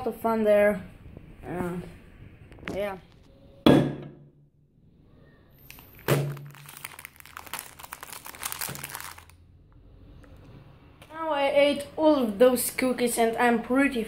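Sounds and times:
plastic wrapper crinkling: 5.6s - 9.4s.

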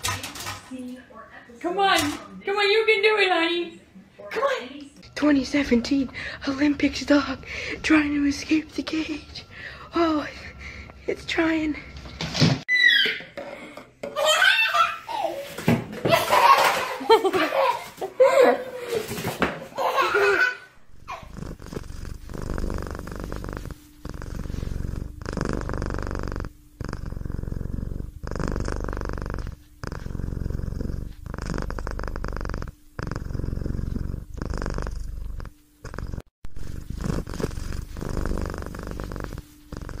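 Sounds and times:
cat purring: 5.1s - 11.9s, 20.9s - 40.0s.

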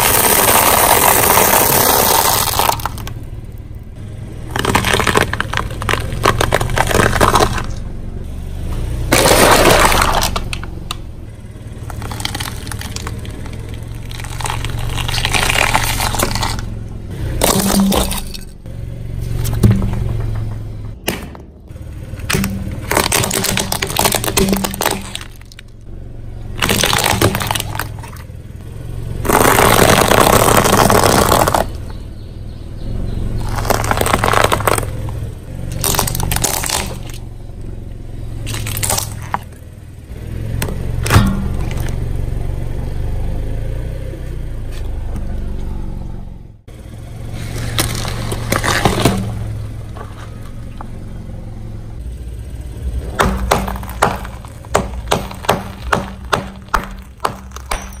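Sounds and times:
items crunching under car tire: 0.0s - 3.6s, 4.3s - 7.9s, 8.6s - 18.6s, 19.2s - 28.4s, 29.0s - 32.3s, 33.1s - 37.4s, 38.0s - 42.7s, 47.1s - 51.4s, 52.9s - 58.0s.

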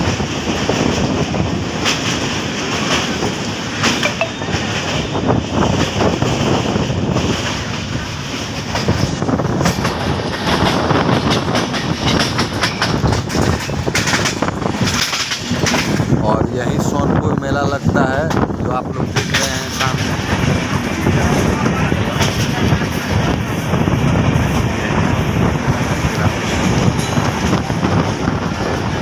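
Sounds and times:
train wheels rumbling on rails: 0.0s - 29.0s
wheels clicking and clacking: 7.3s - 16.2s.

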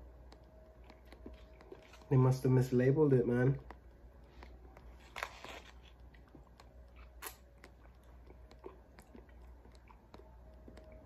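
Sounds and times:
foil pouch crinkling: 4.9s - 6.1s.

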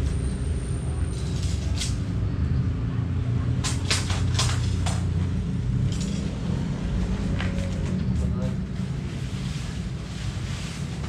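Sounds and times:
fabric and plastic rustling: 8.8s - 11.0s.

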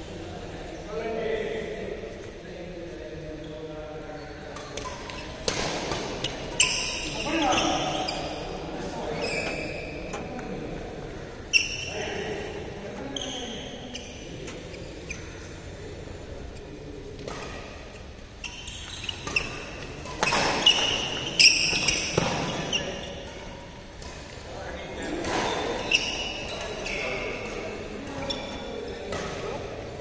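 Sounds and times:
shoes squeaking on court: 4.2s - 10.4s, 11.5s - 12.1s, 12.9s - 15.4s, 16.5s - 24.2s, 25.2s - 29.6s.

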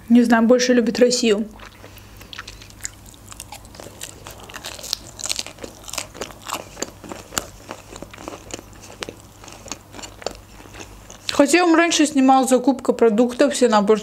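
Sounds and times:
chewing with mouth clicks: 1.6s - 11.4s.

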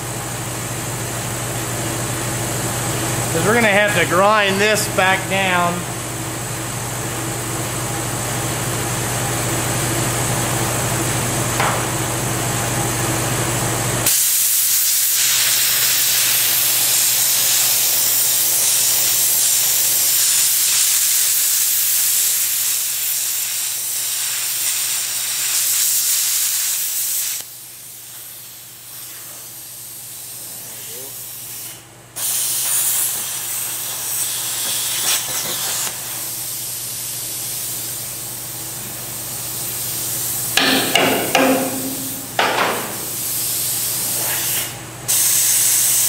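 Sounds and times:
plasma cutter hissing: 14.1s - 38.1s, 39.1s - 46.0s
steady low hum: 40.4s - 43.6s.

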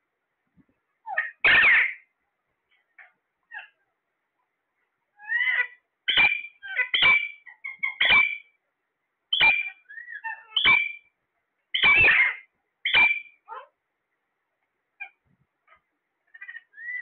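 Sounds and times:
parakeets squawking: 1.1s - 2.1s, 5.2s - 8.5s, 9.3s - 11.1s, 11.7s - 13.7s, 15.0s - 17.0s.

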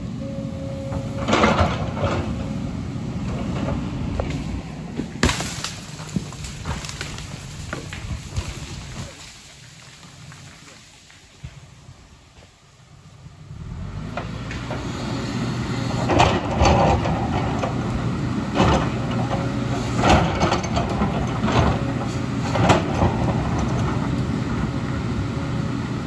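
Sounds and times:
excavator diesel engine running: 0.0s - 5.2s, 12.9s - 26.0s.

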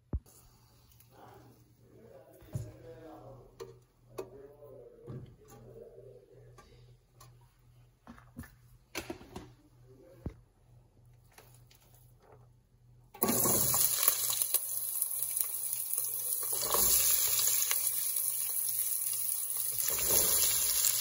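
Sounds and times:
faint voices: 1.1s - 7.2s.

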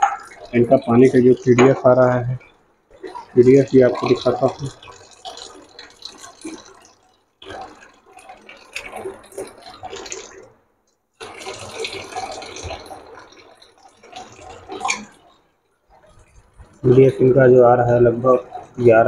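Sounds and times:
water running into a cup: 0.0s - 10.5s, 11.2s - 15.4s.

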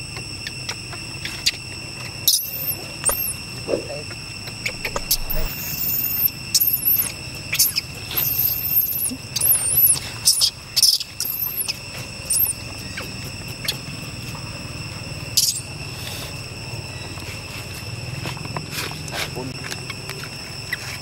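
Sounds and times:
high insect drone: 0.0s - 21.0s
baby monkey squealing: 2.2s - 3.4s, 4.6s - 13.9s, 15.4s - 15.6s.

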